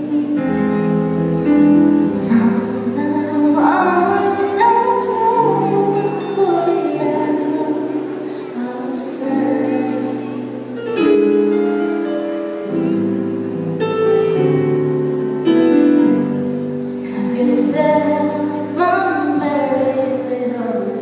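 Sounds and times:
woman singing into a microphone: 0.0s - 11.4s, 17.0s - 21.0s
keyboard and band playing: 0.0s - 21.0s.

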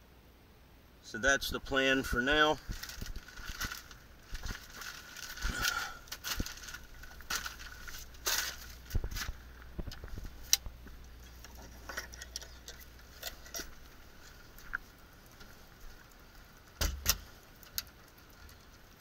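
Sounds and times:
person moving about: 2.6s - 16.6s.

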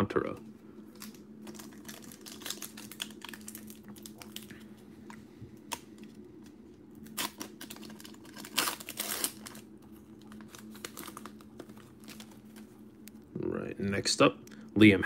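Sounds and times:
foil wrapper crinkling: 0.9s - 4.8s, 5.6s - 12.9s.

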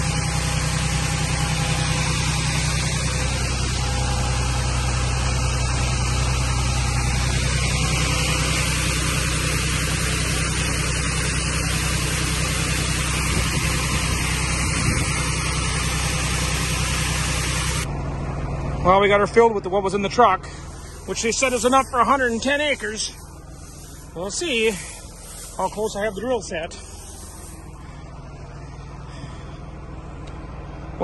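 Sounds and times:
heavy engine running: 0.0s - 31.0s
beans pouring hiss: 20.5s - 27.8s.

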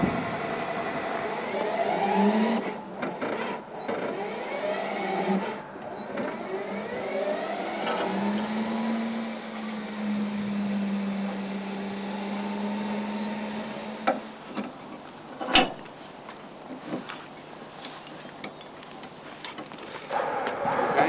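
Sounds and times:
electric winch motor running: 0.0s - 14.4s.

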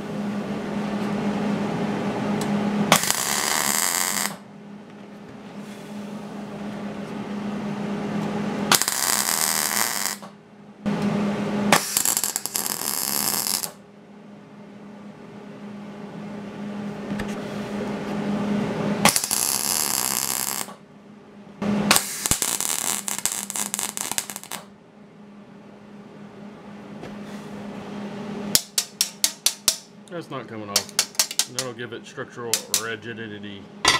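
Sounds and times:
steady low hum: 0.0s - 12.5s, 13.7s - 33.9s
welder arc crackling: 2.9s - 4.4s, 8.7s - 10.3s, 11.8s - 13.8s, 19.1s - 20.8s, 21.9s - 24.7s, 28.5s - 33.6s.

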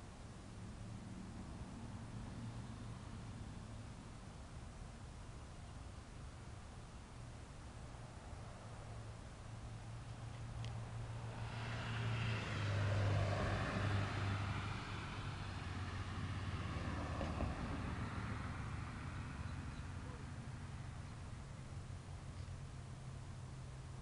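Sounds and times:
steady low hum: 0.0s - 13.0s, 13.6s - 24.0s
vehicle passing by: 0.9s - 3.9s, 9.7s - 24.0s.

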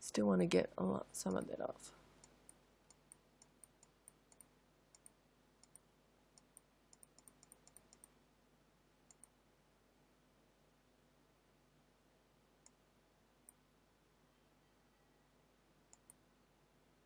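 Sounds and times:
computer mouse clicking: 2.2s - 5.8s, 6.4s - 8.1s, 9.1s - 9.4s, 15.9s - 16.2s.

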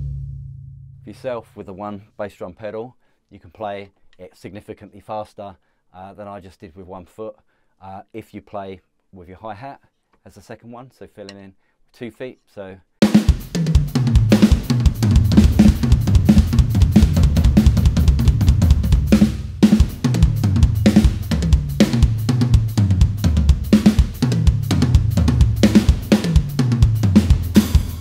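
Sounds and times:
bass drum: 0.0s - 1.1s, 13.1s - 28.0s
electronic drum toms: 0.0s - 1.1s, 13.0s - 28.0s.

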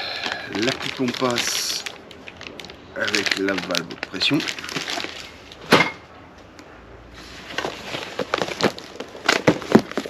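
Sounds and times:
packaging crinkling: 0.1s - 5.7s, 7.5s - 10.0s.

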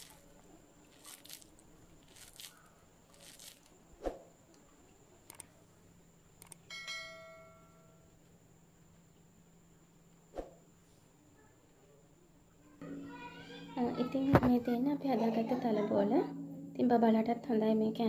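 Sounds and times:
hands rustling mixture: 0.0s - 3.8s.

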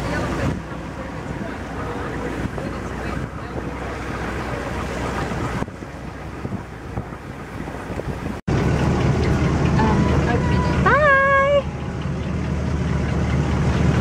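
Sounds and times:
boat engine drone: 0.0s - 14.0s
water rushing along boat hull: 0.0s - 14.0s
wind on microphone: 5.0s - 8.5s.

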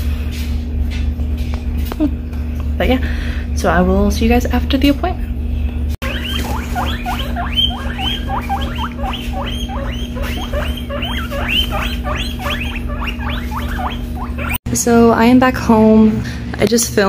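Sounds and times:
guinea pigs wheeking: 6.0s - 14.6s
steady low hum: 6.0s - 14.6s.

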